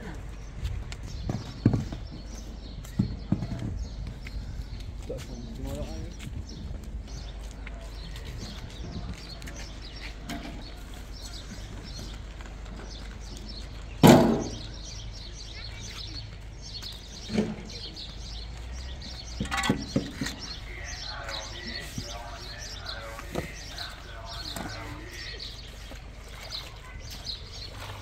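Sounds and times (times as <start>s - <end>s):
small birds chirping: 0.0s - 28.0s
metal clank of wheelbarrow: 14.0s - 14.6s, 17.3s - 17.8s, 19.4s - 20.4s.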